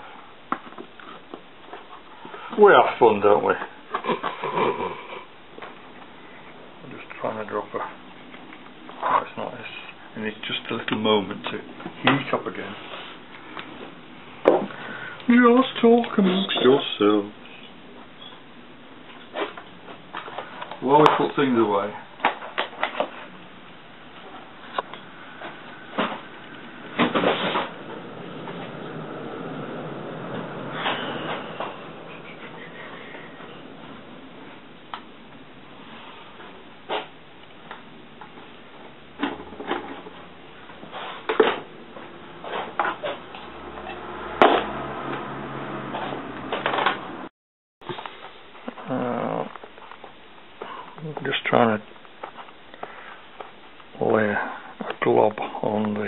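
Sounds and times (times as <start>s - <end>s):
rustling scrape: 12.6s - 13.2s, 27.0s - 28.8s, 40.8s - 41.3s.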